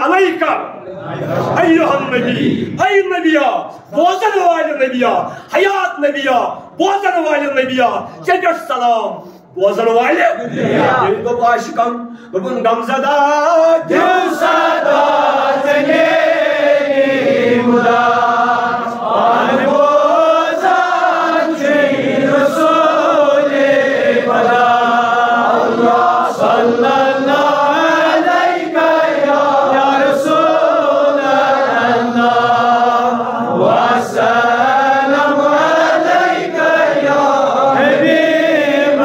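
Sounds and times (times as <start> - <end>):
man chanting into a microphone: 1.5 - 14.0.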